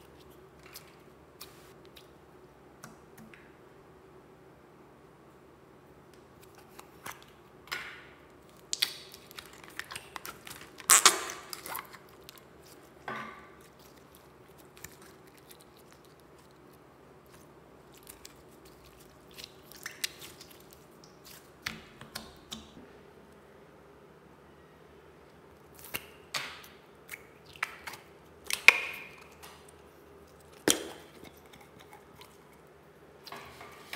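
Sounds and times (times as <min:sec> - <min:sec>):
slime squishing and crackling: 0:08.4 - 0:22.8.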